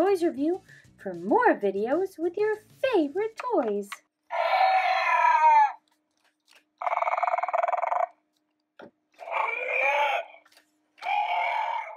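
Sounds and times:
dinosaur screeches: 4.3 - 5.8, 6.8 - 8.1, 9.2 - 10.4, 11.0 - 11.9.

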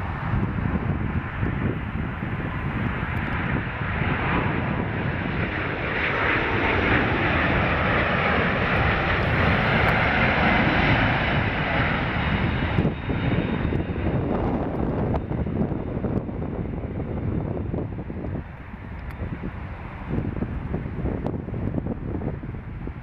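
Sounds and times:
jet plane rumble and hiss: 0.0 - 23.0.

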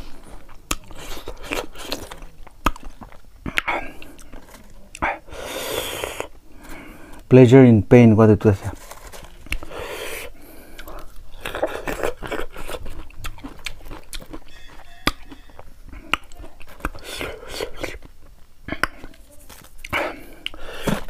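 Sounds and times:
chewing and crunching mango: 0.0 - 7.2, 8.6 - 21.0
breathy noise: 3.5 - 7.3, 8.8 - 12.2.

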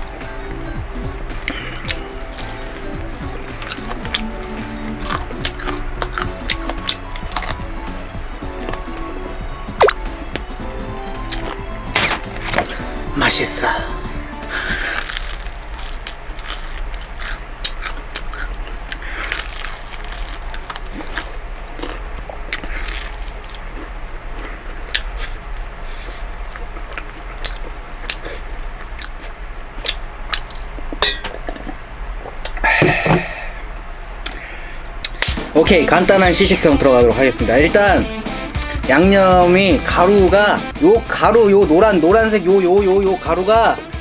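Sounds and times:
man catching his breath: 1.4 - 1.9, 32.6 - 33.7
person crunching fried chicken: 3.5 - 7.7, 14.5 - 30.7.

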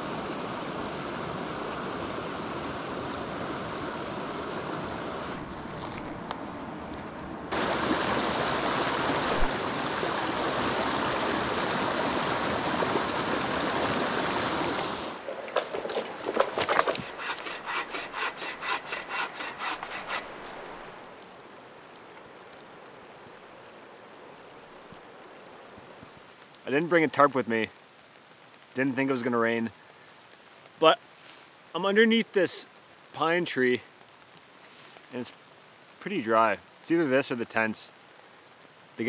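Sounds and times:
rain falling on water: 0.0 - 16.8, 20.4 - 39.0
hand saw cutting wood: 16.4 - 20.6.

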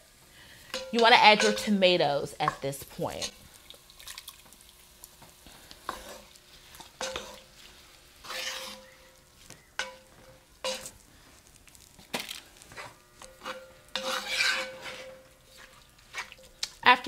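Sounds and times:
light sizzling: 0.0 - 17.0
wooden spoon scraping a pot: 5.5 - 9.2, 12.7 - 16.4.

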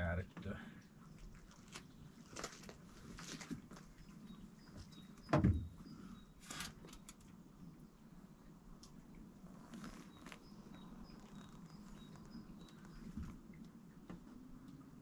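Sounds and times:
clicks and rustles of wire: 1.3 - 4.0, 6.4 - 7.3.

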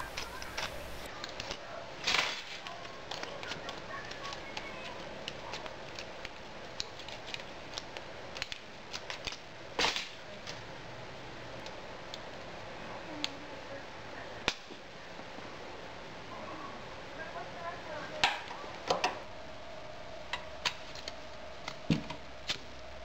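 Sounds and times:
aluminium foil crinkling: 0.0 - 10.6
scissors trimming foil: 0.0 - 10.6, 20.3 - 21.8.

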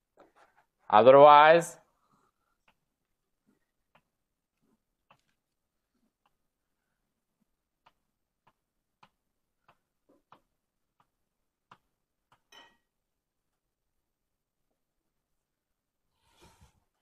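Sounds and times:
taps and clicks of writing on board: 3.9 - 4.2, 7.8 - 12.5
scrape on board: 16.2 - 16.8.

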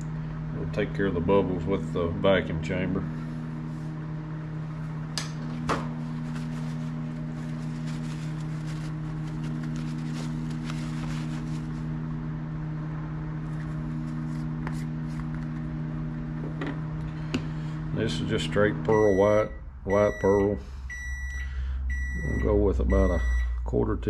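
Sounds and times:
microwave oven humming: 0.0 - 24.0
paper towel rustling: 5.5 - 12.0, 13.4 - 15.6.

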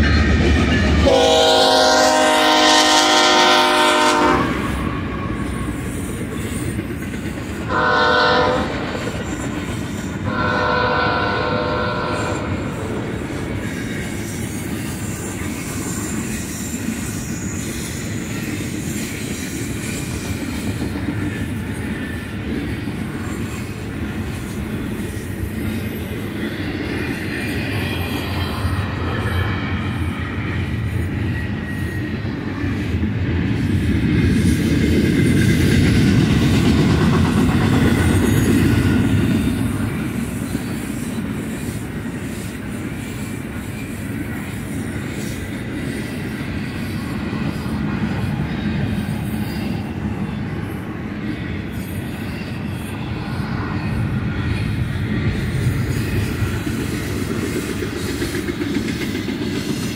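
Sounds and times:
steel wheels clattering on rail: 0.0 - 59.9
train rumbling past: 0.0 - 59.9
locomotive air horn blasts: 1.0 - 4.8, 7.7 - 9.1, 10.3 - 12.6.

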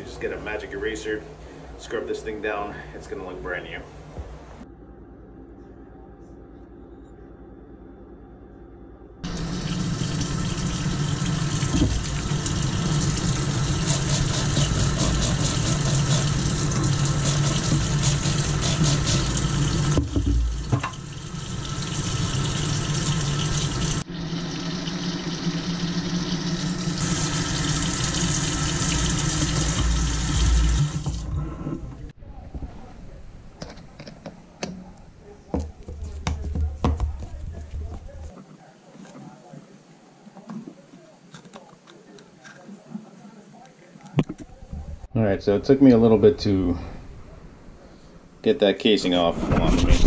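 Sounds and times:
faucet running into steel sink: 9.3 - 31.3.

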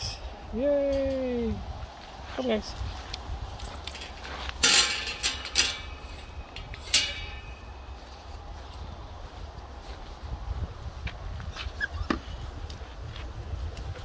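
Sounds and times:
metal clinking: 3.5 - 8.1.

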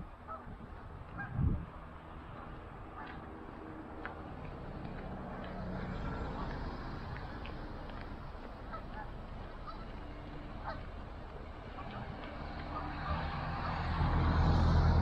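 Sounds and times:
geese honking: 5.4 - 14.3.

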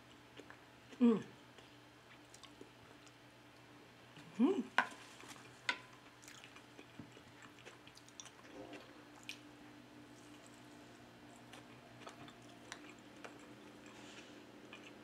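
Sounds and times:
quiet chewing: 0.0 - 15.0
person humming: 1.0 - 1.3, 4.3 - 4.7.

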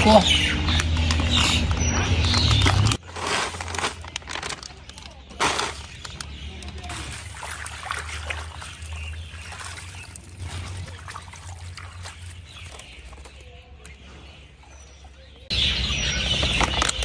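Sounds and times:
hands sloshing water in basin: 6.7 - 15.4.

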